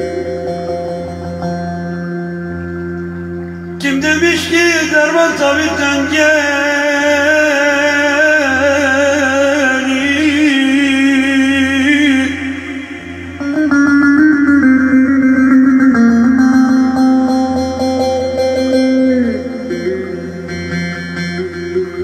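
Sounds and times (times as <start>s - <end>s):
plucked long-necked lute: 0.0s - 22.0s
man singing folk song: 3.8s - 12.6s.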